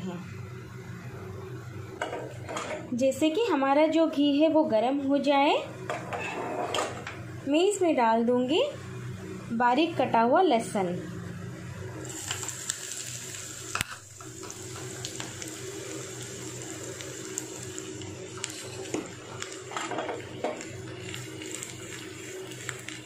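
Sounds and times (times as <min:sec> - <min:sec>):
garlic sizzling in hot oil: 0:12.0 - 0:23.0.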